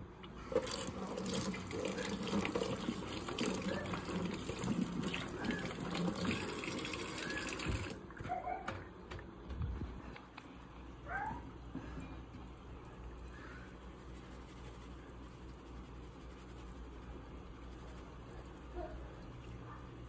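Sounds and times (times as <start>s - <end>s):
tap water running into sink: 0.4s - 8.0s.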